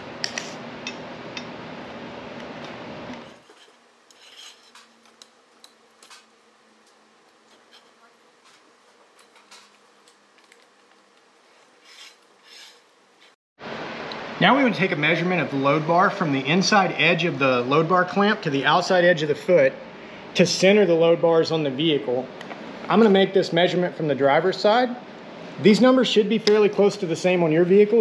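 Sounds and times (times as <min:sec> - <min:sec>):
steady background hiss: 0:02.9 - 0:28.0
metal bars scraping: 0:03.3 - 0:06.4, 0:07.4 - 0:09.9, 0:11.5 - 0:13.4.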